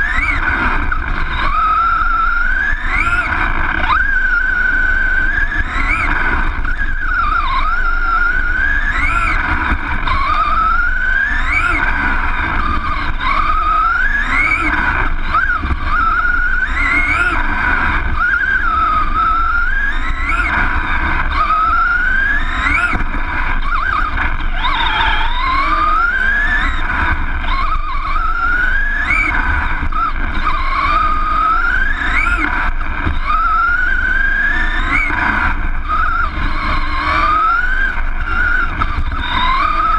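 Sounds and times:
toy car motor whining: 0.0s - 39.9s
tyres rumbling on dirt: 0.0s - 39.9s.

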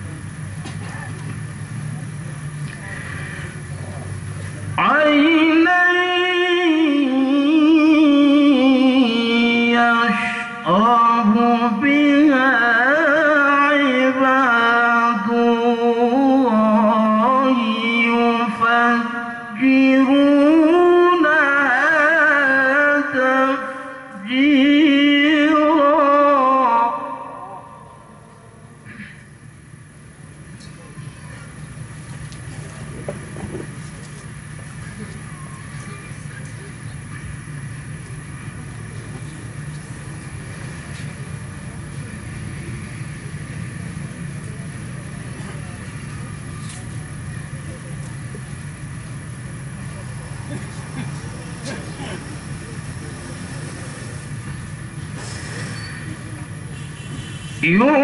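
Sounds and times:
low mechanical hum: 0.0s - 58.0s
man chanting over loudspeakers: 4.7s - 28.7s, 57.6s - 58.0s
faint hiss: 30.5s - 57.7s.

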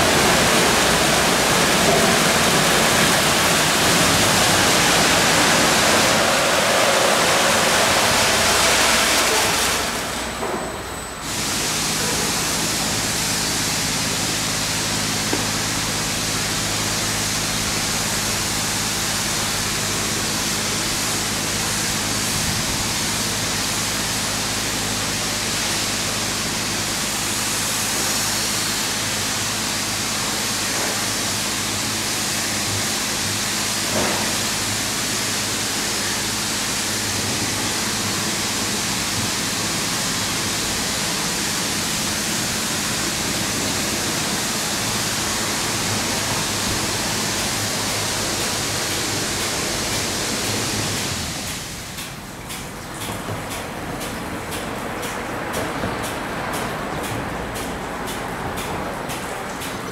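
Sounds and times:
water spray and spinning brushes: 0.0s - 10.4s, 11.2s - 59.9s.

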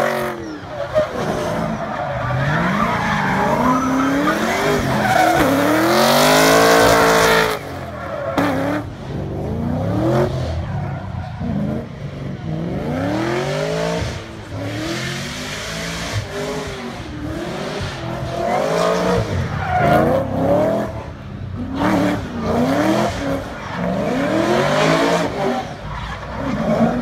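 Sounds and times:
car engine revving: 0.0s - 27.0s.

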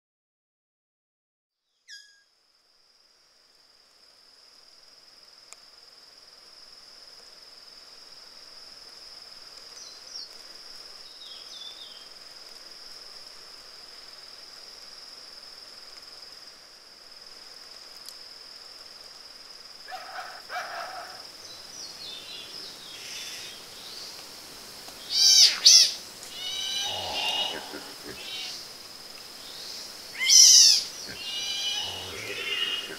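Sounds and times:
high-pitched insect whine: 1.8s - 32.9s
birds calling: 19.9s - 24.1s, 25.0s - 28.7s, 29.5s - 32.9s.

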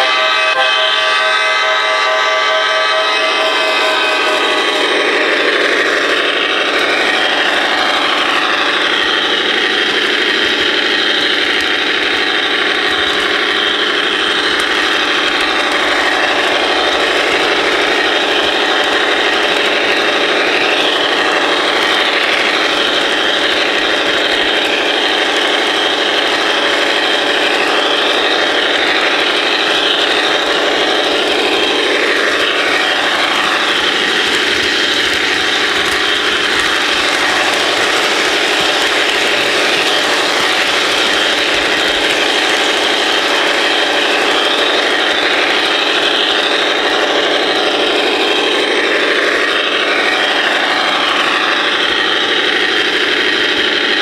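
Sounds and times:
model train motor whirring: 0.0s - 54.0s.

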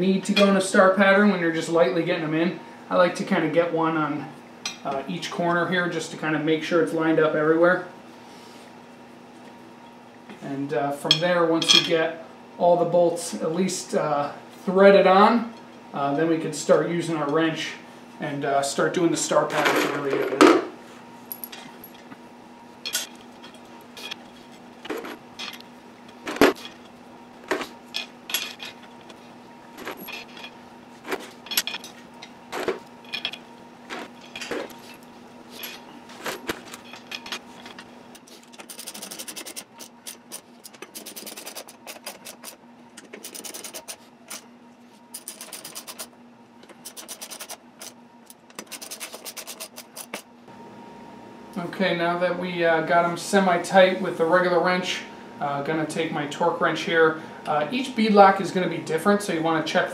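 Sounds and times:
metal bolts clinking: 31.4s - 32.0s.

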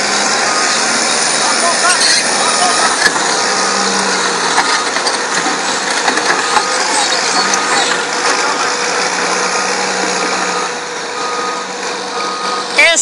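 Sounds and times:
heavy diesel machines running: 0.0s - 13.0s
faint back-up alarm beeping: 0.4s - 3.8s, 6.3s - 8.6s, 9.3s - 13.0s.

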